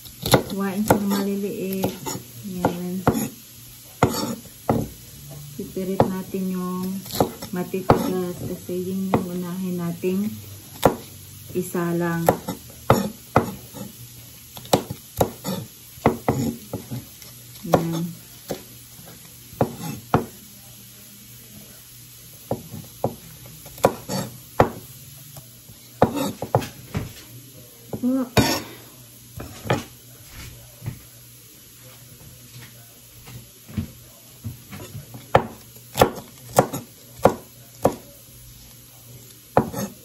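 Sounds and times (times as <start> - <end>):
knife chopping on wooden board: 0.2 - 3.4, 4.0 - 5.0, 5.9 - 6.3, 7.0 - 9.5, 10.7 - 11.1, 12.1 - 13.9, 14.6 - 18.7, 19.6 - 20.4, 22.4 - 24.9, 26.0 - 27.1, 27.9 - 28.7, 29.4 - 29.9, 34.4 - 38.1, 39.6 - 40.0.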